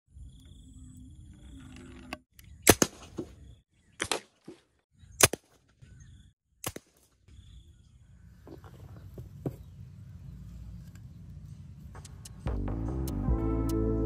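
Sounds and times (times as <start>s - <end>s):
sharp cracks: 2.6s - 3.3s, 4.0s - 4.6s, 5.2s - 5.7s, 6.6s - 7.2s.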